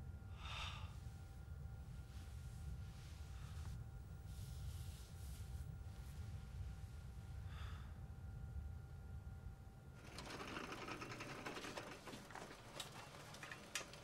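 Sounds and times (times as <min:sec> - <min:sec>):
faint steady tones: 0:00.0 - 0:14.0
low steady hum: 0:00.0 - 0:14.0
rapid mechanical clatter: 0:10.0 - 0:14.0.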